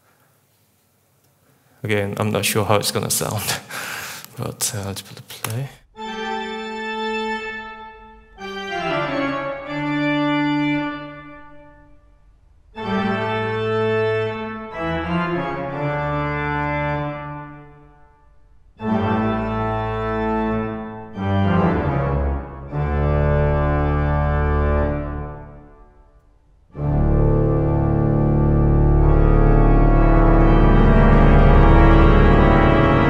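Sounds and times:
pipe organ playing chords: 5.9s - 33.0s.

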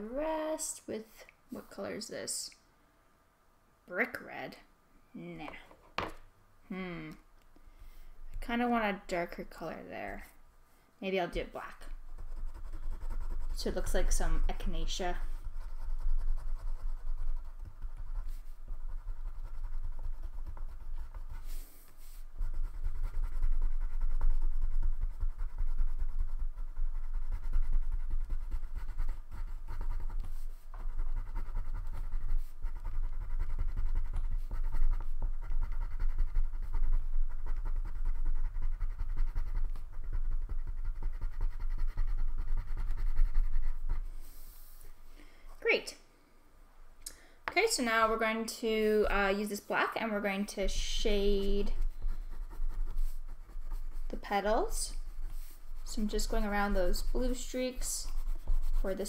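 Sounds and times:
crayon scribbling on paper: 11.3s - 44.8s, 47.5s - 59.0s.

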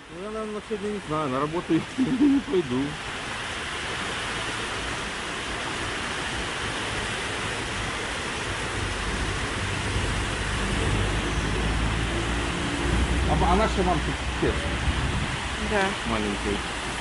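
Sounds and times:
heavy rain: 0.0s - 17.0s.

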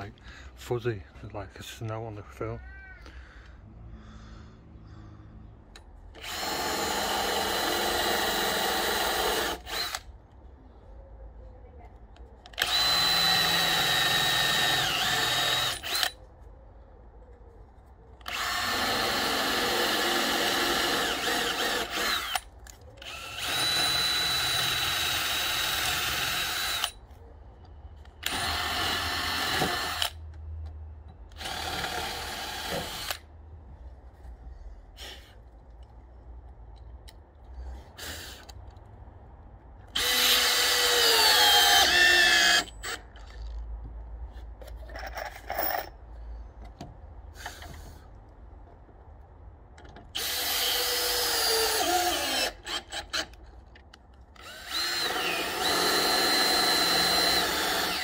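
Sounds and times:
cordless drill boring into wood: 6.2s - 10.0s, 12.6s - 16.2s, 18.2s - 27.0s, 28.2s - 30.2s, 31.3s - 33.2s, 40.0s - 43.0s, 50.2s - 53.4s, 54.4s - 58.0s.

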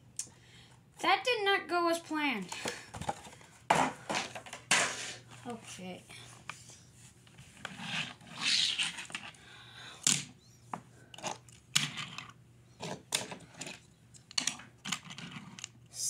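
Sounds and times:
toy cars clicking on wooden floor: 11.1s - 15.7s.

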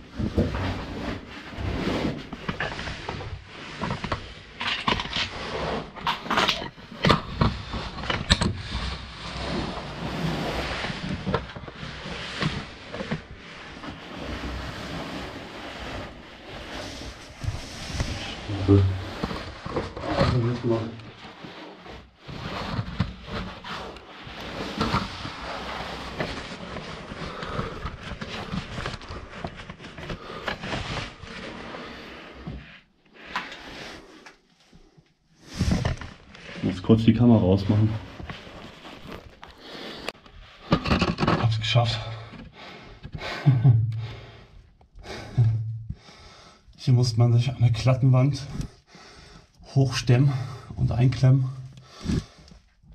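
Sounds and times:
clothing scraping against rock: 0.1s - 4.6s, 7.2s - 34.2s, 35.4s - 40.7s
heavy breathing: 42.1s - 46.8s, 48.5s - 49.6s, 51.8s - 52.7s.

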